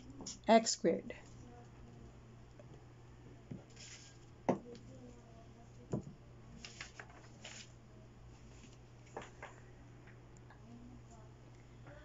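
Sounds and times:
steady low hum: 0.0s - 12.0s
paper rustles: 3.7s - 4.2s, 6.6s - 7.8s, 8.4s - 9.4s.

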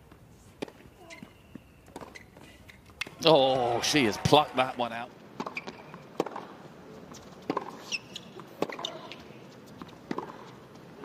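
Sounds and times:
shoe squeak: 0.9s - 2.9s, 5.4s - 6.1s, 7.1s - 9.8s
racket striking tennis ball: 5.4s - 6.5s, 7.4s - 9.2s, 9.8s - 10.6s.

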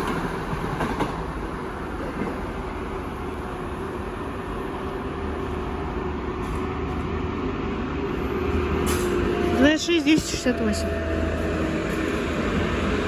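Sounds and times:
freight train rumbling on rails: 0.0s - 13.0s.

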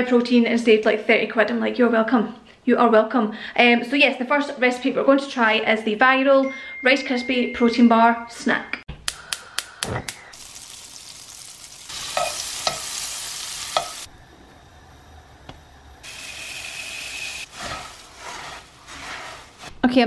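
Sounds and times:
marshmallows sizzling in a pan: 10.3s - 14.1s, 16.0s - 20.0s.

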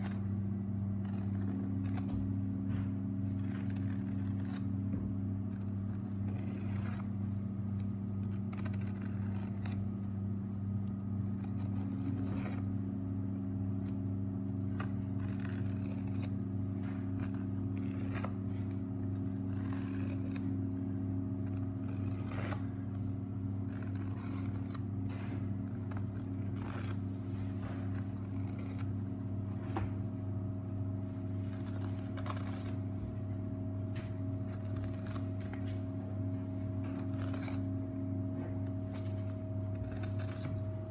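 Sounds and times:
low machine hum: 0.0s - 40.9s
knife scraping along bones: 0.9s - 2.3s, 3.3s - 4.8s, 5.4s - 10.0s, 10.9s - 12.8s, 13.8s - 20.8s, 21.4s - 23.0s, 23.6s - 29.0s, 36.5s - 37.8s, 38.7s - 40.9s.

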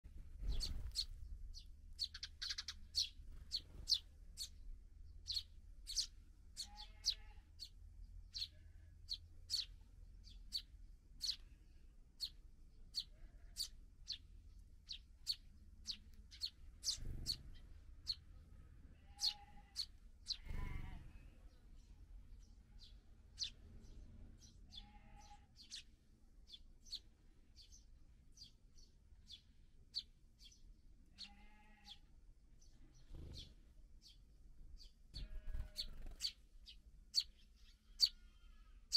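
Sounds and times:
fledglings begging chirps: 0.4s - 11.5s, 12.2s - 18.3s, 19.0s - 21.0s, 22.8s - 23.6s, 24.4s - 25.9s, 34.8s - 38.2s.

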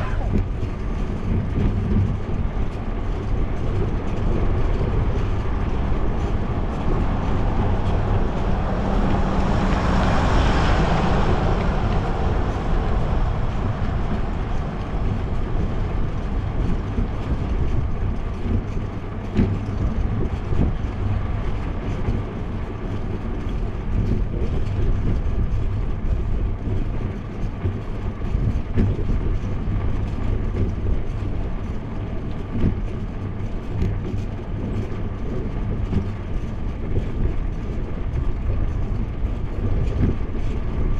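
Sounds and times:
road and tyre noise: 0.0s - 40.9s
wind buffeting microphone: 0.0s - 40.9s.

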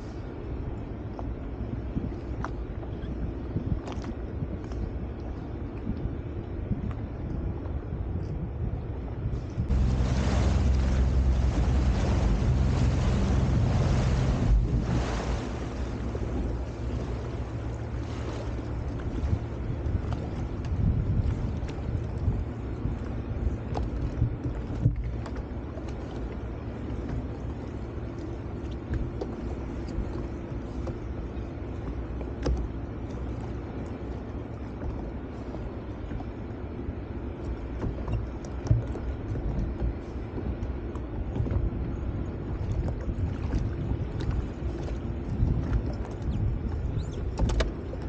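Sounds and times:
wind on microphone: 1.0s - 25.4s, 37.7s - 48.0s
jet ski engine idling: 9.7s - 20.5s.

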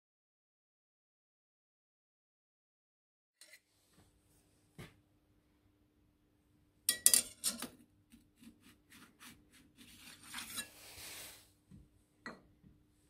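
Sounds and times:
metal-on-metal slide: 3.4s - 3.7s, 10.0s - 11.4s.

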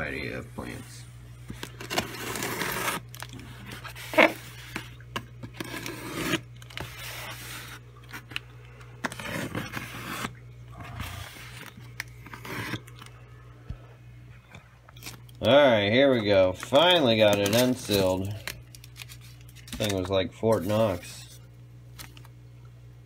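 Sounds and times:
cardboard box tape tearing: 1.7s - 4.7s, 5.5s - 8.3s, 9.0s - 10.4s, 11.2s - 12.9s.

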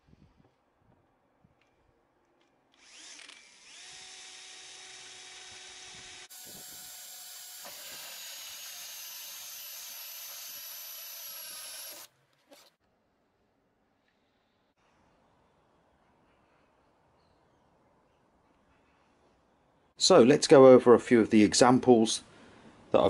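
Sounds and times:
cordless drill cutting plastic: 2.8s - 12.7s.

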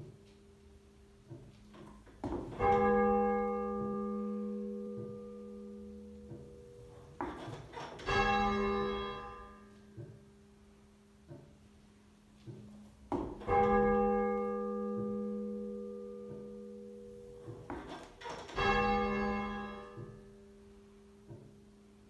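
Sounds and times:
church bell tolling: 1.2s - 11.1s, 13.2s - 22.0s
faint knocks: 6.2s - 8.5s, 17.4s - 20.3s.

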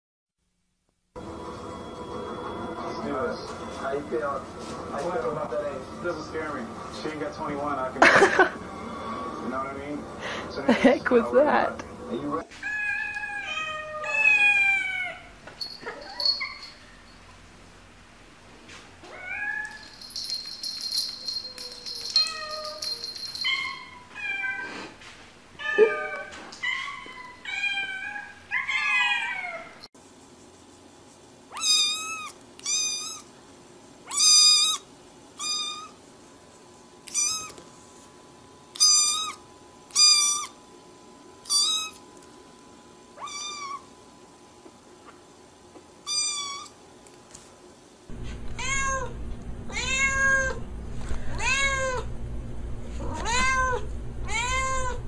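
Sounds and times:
cats meowing: 12.5s - 16.7s, 25.6s - 29.8s, 37.1s - 37.6s, 43.2s - 43.9s, 48.2s - 50.6s, 51.4s - 52.1s, 53.0s - 55.0s
kitten high-pitched meows: 12.6s - 15.3s, 31.5s - 33.3s, 34.1s - 34.8s, 35.4s - 36.0s, 37.1s - 37.6s, 38.8s - 40.6s, 41.4s - 42.0s, 43.2s - 43.8s, 46.0s - 46.8s, 48.6s - 49.1s, 49.7s - 50.6s, 51.4s - 52.0s, 53.0s - 55.0s
steady low hum: 48.1s - 55.0s.

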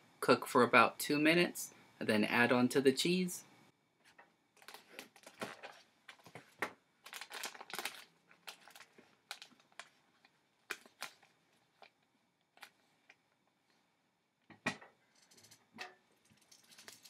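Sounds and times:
plastic tub crinkling: 4.6s - 13.2s.

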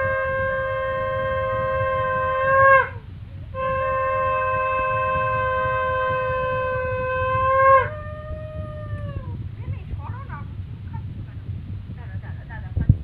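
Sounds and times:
conch shell blown: 0.0s - 9.2s.

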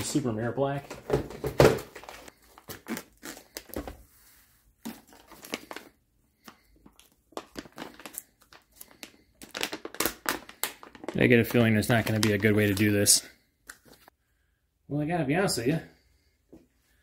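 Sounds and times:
plastic packaging crinkling: 4.9s - 13.2s.

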